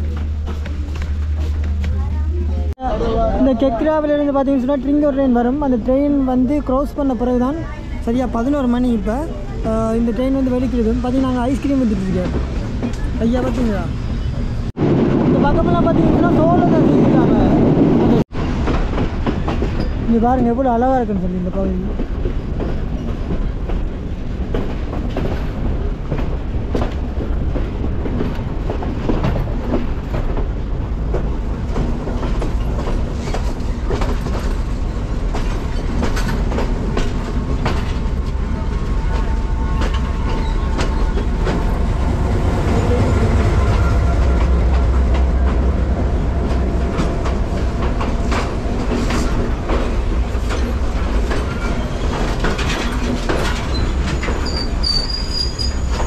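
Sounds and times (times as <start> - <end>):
train rumble: 0.0 - 56.0
wheels clicking over rail joints: 21.4 - 56.0.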